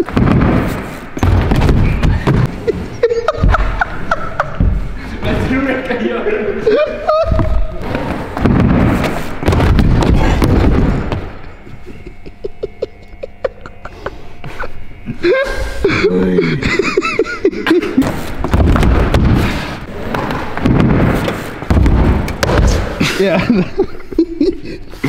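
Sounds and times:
person groaning and laughing: 2.0 - 5.2, 6.5 - 8.3, 11.3 - 18.3, 22.7 - 25.0
bike tyres rolling on wooden ramps: 7.4 - 11.4, 18.0 - 23.0.

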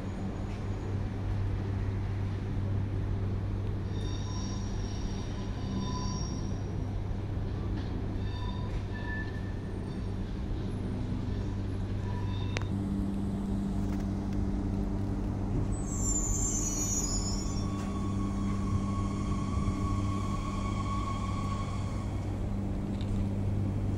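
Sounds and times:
train running gear hum: 0.0 - 23.9
high brake squeal: 3.8 - 6.8, 8.2 - 10.2, 11.9 - 12.7, 15.7 - 22.2.

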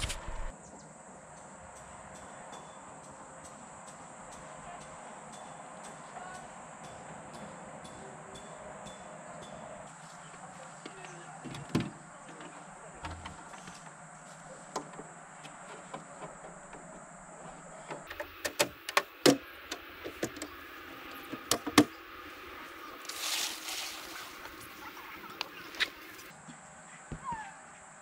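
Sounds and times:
short rustle: 22.9 - 26.3.

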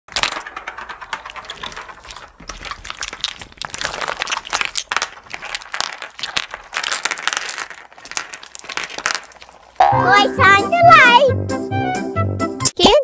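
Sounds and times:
glass pebbles clicking: 0.1 - 9.9
slime crackling and popping: 0.1 - 10.1.

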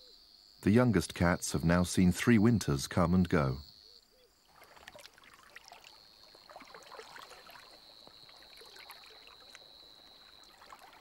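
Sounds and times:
high-pitched insect trill: 3.6 - 11.0
splashing in shallow water: 4.4 - 11.0.

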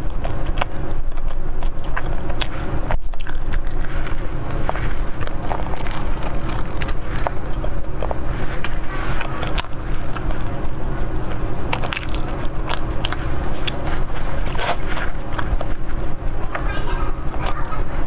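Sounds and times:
mouth sounds: 0.0 - 18.0
steady low hum: 0.0 - 18.0.

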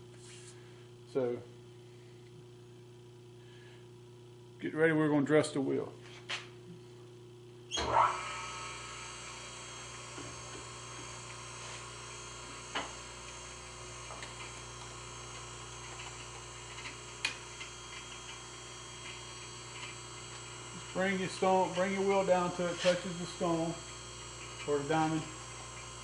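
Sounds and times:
surface grinder whining: 7.7 - 26.0.

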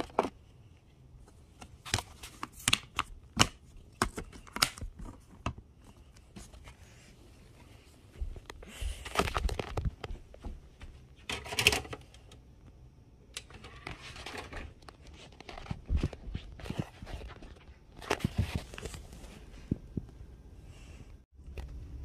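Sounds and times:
handling rustling and scraping: 3.7 - 12.1, 13.4 - 20.1.

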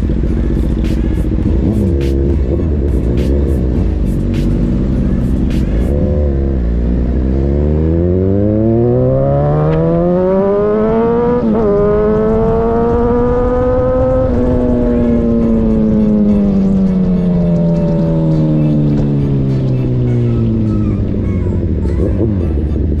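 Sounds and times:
motorcycle engine accelerating: 0.0 - 23.0
wind on microphone: 10.5 - 16.0.

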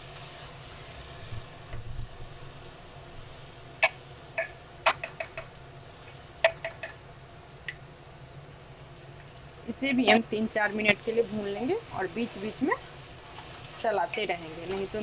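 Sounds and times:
spatula tapping metal cooker: 3.8 - 5.5, 6.4 - 7.0
spatula stirring in pot: 10.8 - 15.0.

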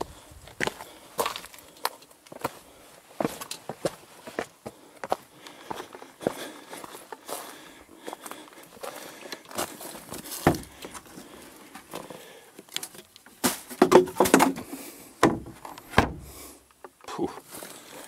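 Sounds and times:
bin lid knocking and rattling: 13.5 - 14.6
bin lid heavy thumps: 15.2 - 16.3.

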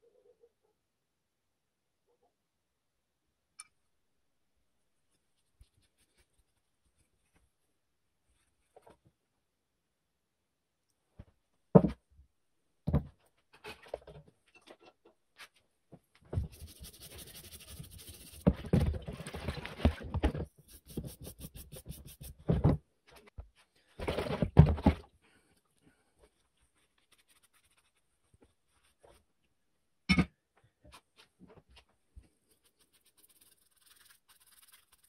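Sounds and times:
brush scrubbing metal in water: 16.4 - 20.0, 20.6 - 22.4, 32.5 - 35.0.

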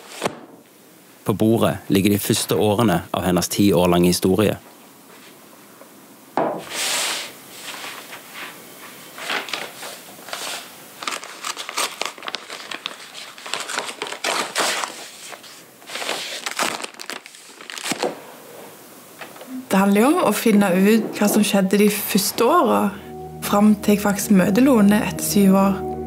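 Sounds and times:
paper wrapping crinkling: 7.2 - 18.6.

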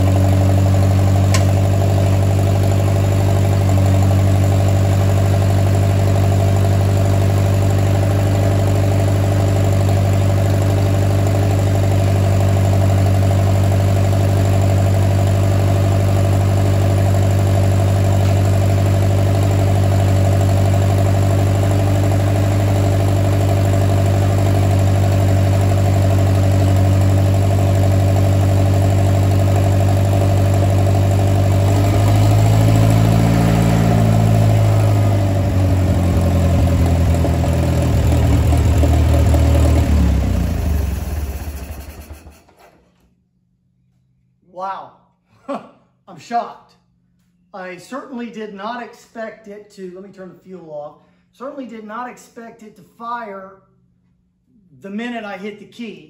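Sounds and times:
tractor engine running: 0.0 - 42.6.

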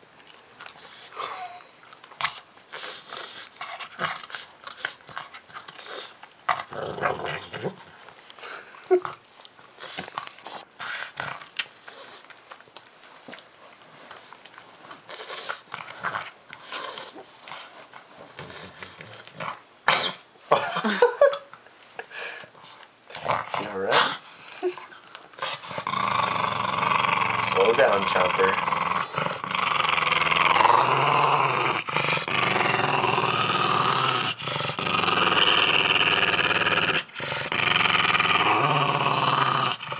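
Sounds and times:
dog chewing: 0.0 - 19.8
dog growling: 2.2 - 9.2, 23.1 - 39.9.

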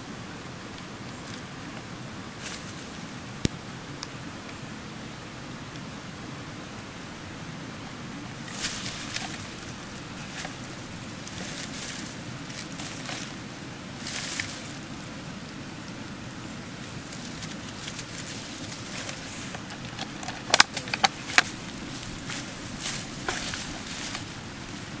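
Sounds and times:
steady background hiss: 0.0 - 25.0
dry leaves rustling and crackling: 0.7 - 3.2, 8.2 - 25.0.

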